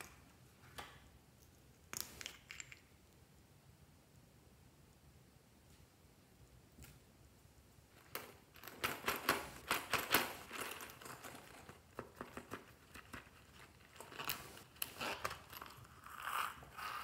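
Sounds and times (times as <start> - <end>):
plastic clicks taps and crinkles: 8.0 - 15.8
zipper being pulled open: 14.2 - 17.0.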